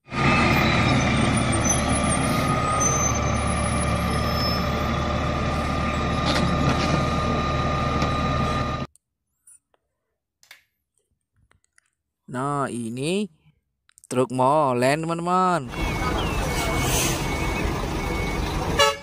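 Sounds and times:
diesel engine hum: 0:00.0 - 0:08.9, 0:15.6 - 0:19.0.

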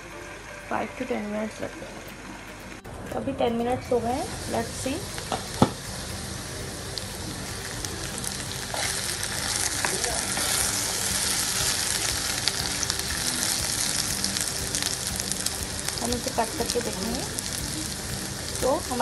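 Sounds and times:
potatoes sizzling in oil: 0:03.9 - 0:19.0.

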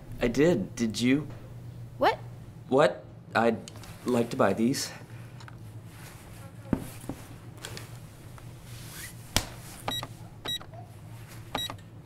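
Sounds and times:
low electrical hum: 0:00.0 - 0:12.0
electronic checkout beeps: 0:09.9 - 0:10.7, 0:11.6 - 0:11.8.

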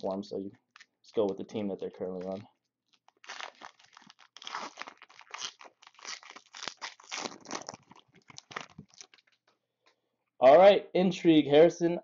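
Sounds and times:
foil wrapper crinkling: 0:02.2 - 0:09.4.

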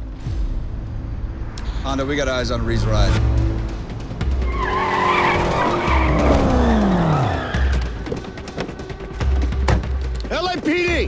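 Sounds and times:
car tires squealing: 0:04.4 - 0:08.3.

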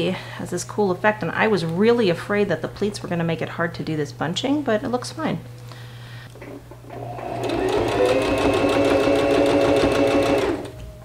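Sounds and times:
sewing machine running: 0:06.9 - 0:10.8.

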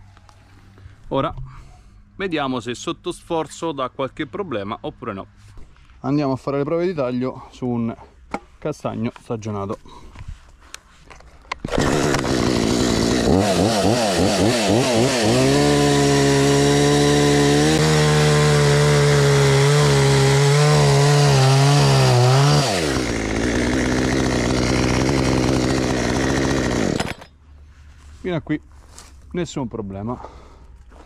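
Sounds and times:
chainsaw revving and cutting log: 0:11.6 - 0:27.3.

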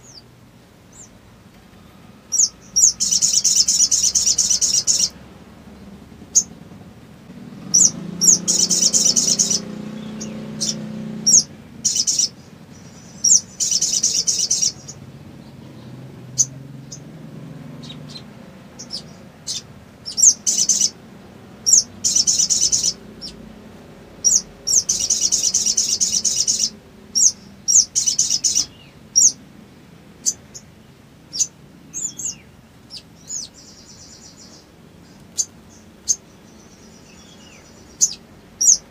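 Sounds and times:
bird high rapid trills: 0:00.9 - 0:29.4, 0:31.3 - 0:38.9
sharp bird chirps: 0:01.8 - 0:05.2, 0:07.5 - 0:15.0, 0:17.8 - 0:21.0, 0:21.6 - 0:23.4, 0:24.2 - 0:29.4, 0:31.3 - 0:38.9.

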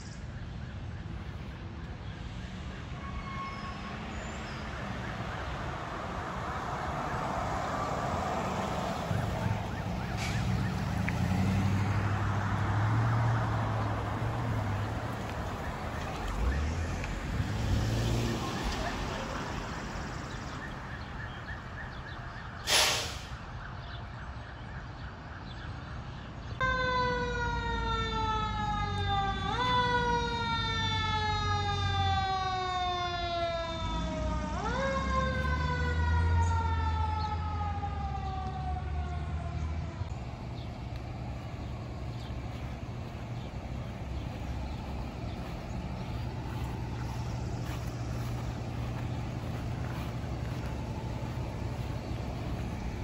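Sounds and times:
emergency vehicle siren: 0:00.0 - 0:53.0
low engine rumble: 0:33.7 - 0:53.0.

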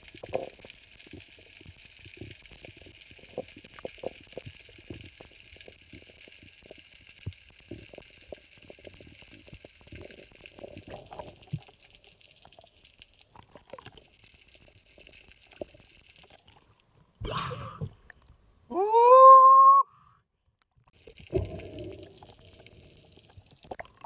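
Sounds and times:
small underwater clicks and knocks: 0:00.0 - 0:17.2, 0:17.8 - 0:18.4, 0:20.4 - 0:24.0
underwater hiss: 0:21.0 - 0:23.3.

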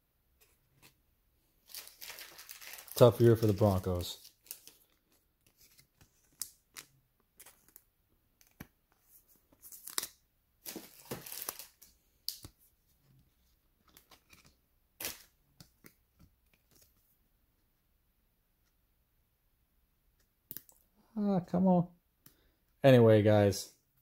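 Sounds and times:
card rustling against plastic: 0:01.6 - 0:07.8, 0:08.4 - 0:12.6.

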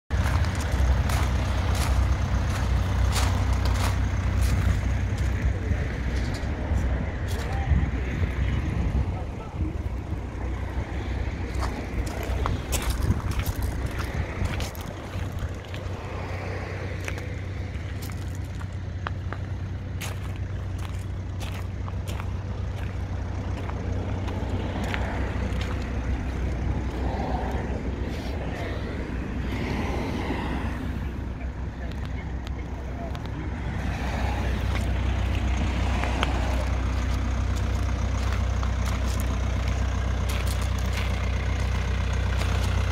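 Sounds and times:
footsteps crunching on gravel: 0:00.1 - 0:07.7, 0:11.0 - 0:28.8, 0:34.0 - 0:42.9
steady low rumble: 0:00.1 - 0:42.9.

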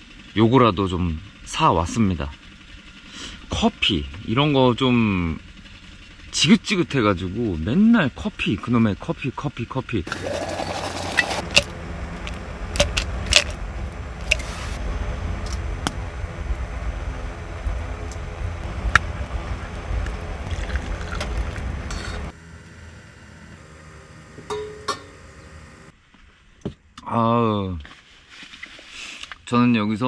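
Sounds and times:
steady low rumble: 0:11.0 - 0:23.0
metal cookware clinking: 0:24.5 - 0:25.2.

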